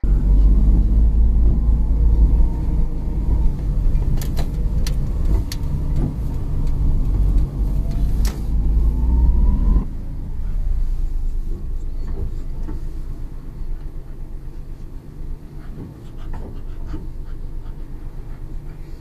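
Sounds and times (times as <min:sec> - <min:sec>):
car low rumble: 0:00.0 - 0:19.0
dog panting: 0:14.1 - 0:19.0.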